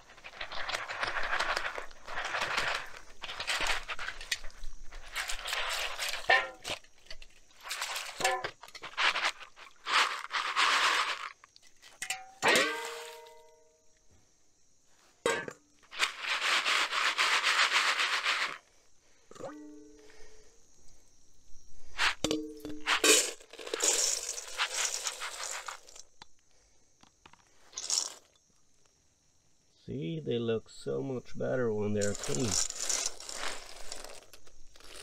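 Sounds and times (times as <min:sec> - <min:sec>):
hands swishing beans in water: 0:00.0 - 0:11.8, 0:15.9 - 0:18.7, 0:21.8 - 0:26.1, 0:27.7 - 0:28.2, 0:32.0 - 0:35.0.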